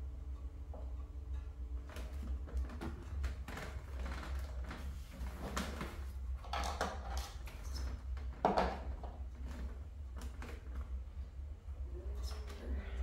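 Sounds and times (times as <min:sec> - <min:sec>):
steady low hum: 0:00.0 - 0:13.0
objects rustling and knocking: 0:01.8 - 0:11.0.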